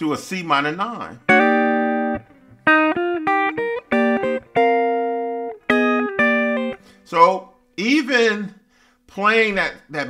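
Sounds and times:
clean electric guitar chords: 1.2s - 7.0s.

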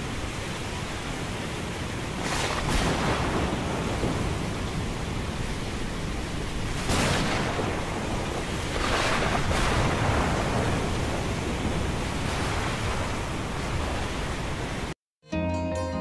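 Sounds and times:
waves: 0.0s - 15.0s
wind: 0.0s - 15.0s
soft plucked-string music: 15.3s - 16.0s.

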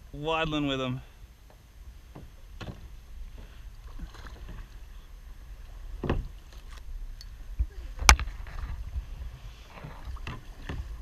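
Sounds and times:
paddle knocks: 1.5s - 4.8s, 5.9s - 6.7s, 9.7s - 11.0s
paddle splashes in water: 2.1s - 7.0s, 8.0s - 11.0s.

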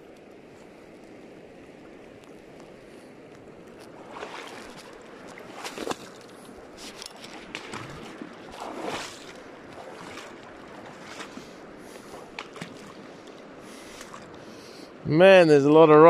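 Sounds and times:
river water flowing: 0.0s - 16.0s
water splashing: 3.7s - 14.5s.

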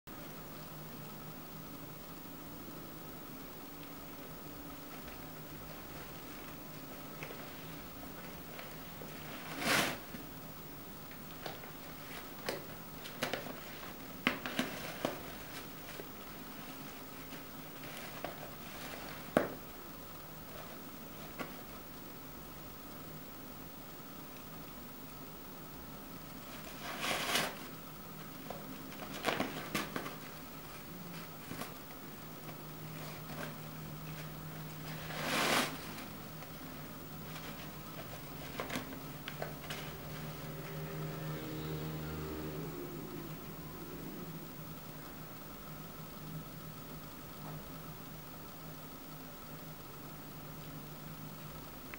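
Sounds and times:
faint low hum: 0.1s - 51.9s
cat rustling tissue box: 4.9s - 10.3s, 11.3s - 19.7s, 20.4s - 21.8s, 26.4s - 40.3s.

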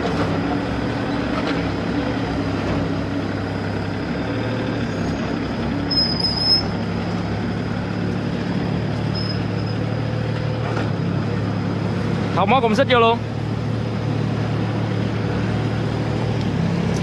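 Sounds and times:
excavator diesel engine running: 0.0s - 17.0s
brief high squeal: 5.9s - 6.8s, 9.1s - 9.8s.

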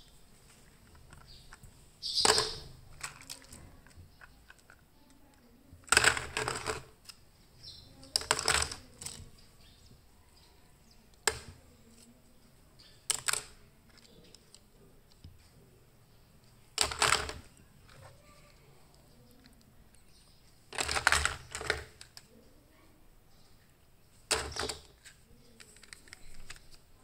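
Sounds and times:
plastic toy cars clattering: 0.6s - 7.2s, 7.9s - 9.4s, 11.1s - 12.2s, 12.9s - 15.4s, 16.7s - 19.6s, 20.7s - 22.3s, 24.2s - 26.8s.

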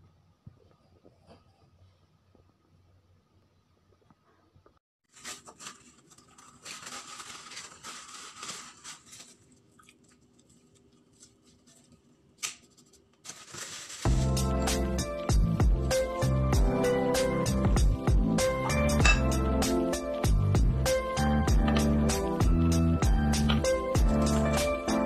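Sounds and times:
rustling and crackling of handled meat: 5.1s - 14.4s
music: 14.0s - 25.0s.

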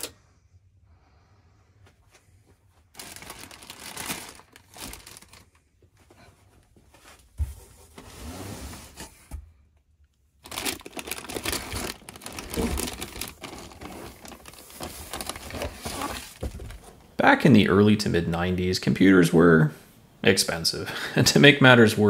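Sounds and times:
plastic bags crinkling and rustling: 2.8s - 5.8s, 10.4s - 17.1s.

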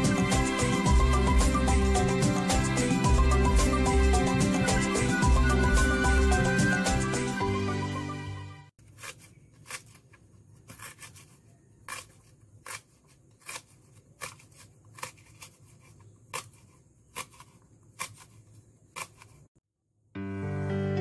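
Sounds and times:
knife slicing on cutting board: 8.8s - 19.6s.

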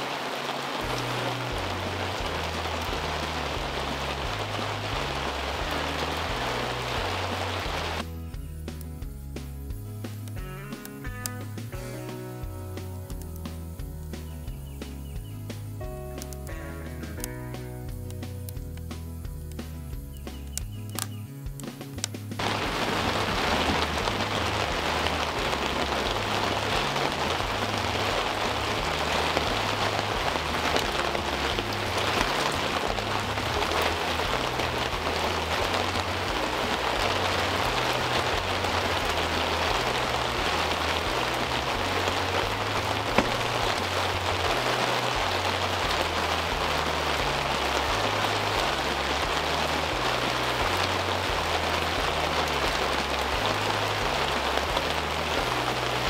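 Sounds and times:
steady rain: 0.0s - 56.0s
bass line music: 0.8s - 56.0s
sharp tick: 10.0s - 11.5s, 13.0s - 15.0s, 16.1s - 22.2s.

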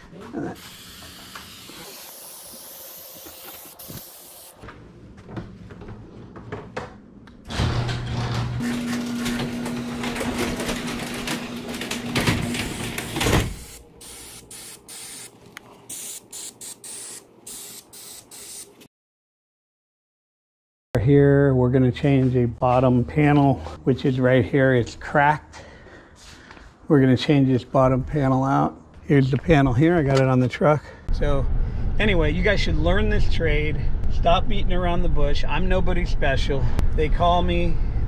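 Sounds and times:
garage door opener motor hum: 7.4s - 13.8s
garage door rattling: 7.5s - 13.6s.

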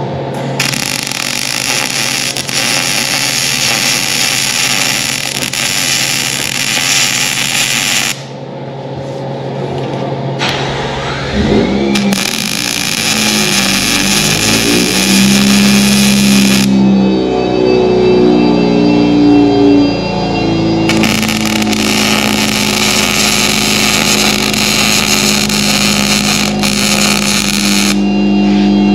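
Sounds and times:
low hum: 0.0s - 28.9s
welding arc crackling hiss: 0.6s - 8.3s, 11.9s - 16.7s, 20.9s - 28.0s.

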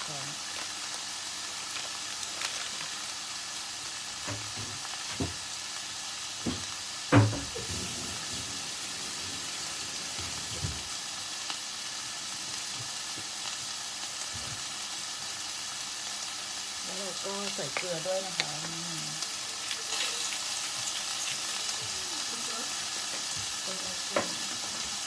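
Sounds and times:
meat sizzling in a pan: 0.0s - 25.0s.

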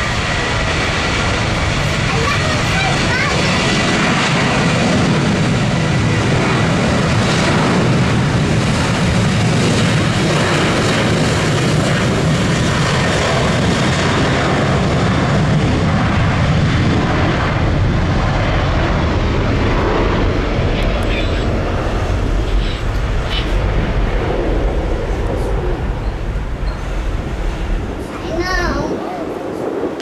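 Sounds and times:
jet engines at takeoff thrust: 0.0s - 30.0s.

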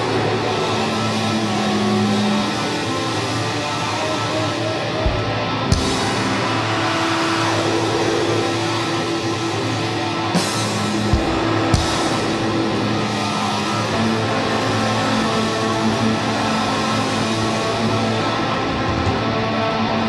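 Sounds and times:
drum and cymbal hits: 0.0s - 17.7s
distorted electric guitar: 0.0s - 20.0s.

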